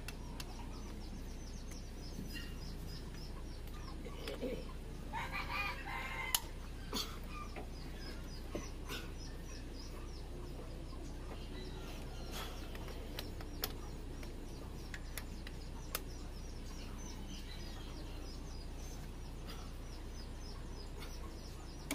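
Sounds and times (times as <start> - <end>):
small bird chirping: 0.0 - 21.9
rooster crowing: 5.1 - 6.6.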